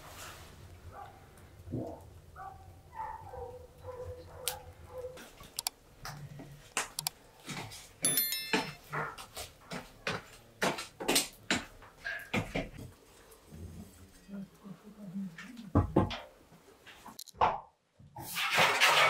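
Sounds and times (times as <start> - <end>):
sharp clicks and knocks: 5.4 - 7.2, 17.0 - 17.7
metallic clink: 8.0 - 8.8.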